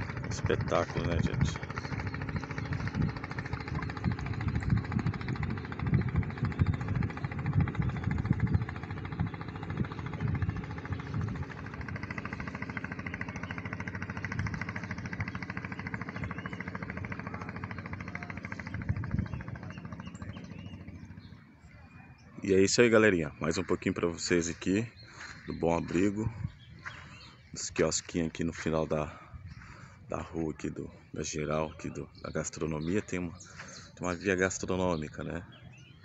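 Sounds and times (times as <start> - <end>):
wind buffeting microphone: 0.0 - 21.8, 23.3 - 30.2
boat engine running: 0.0 - 36.0.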